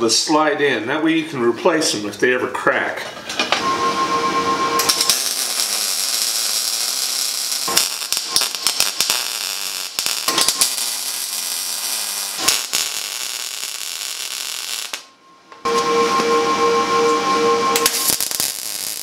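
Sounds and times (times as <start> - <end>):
welding arc crackling and hissing: 4.8 - 15.1, 17.8 - 19.0.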